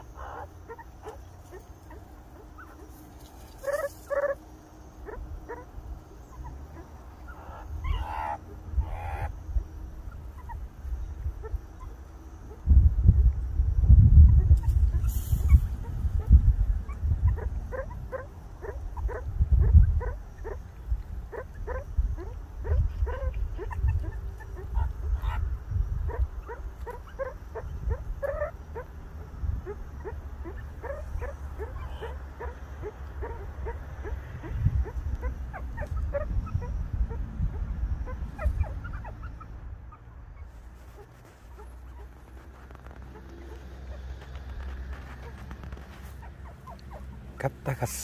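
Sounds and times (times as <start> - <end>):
meerkats giving alarm barks: 0.0 - 2.9, 3.6 - 4.4, 5.0 - 9.3, 15.8 - 39.5.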